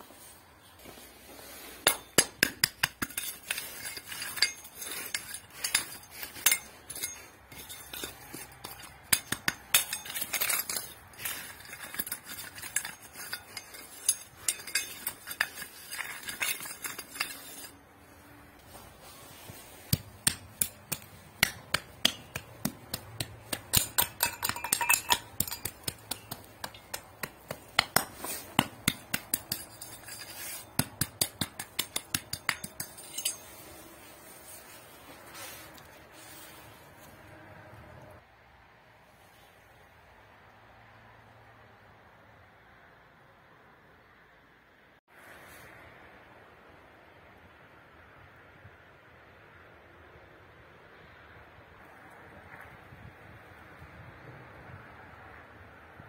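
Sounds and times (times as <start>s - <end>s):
trowel scraping stony soil: 0.0s - 37.3s
trowel clinking on gravel: 1.8s - 17.8s, 19.5s - 34.0s.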